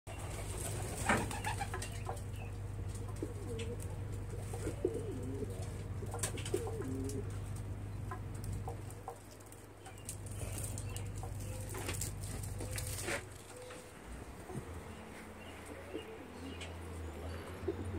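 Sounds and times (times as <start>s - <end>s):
steady low hum: 0.1s - 17.9s
pigeon cooing: 3.0s - 9.2s, 10.3s - 17.9s.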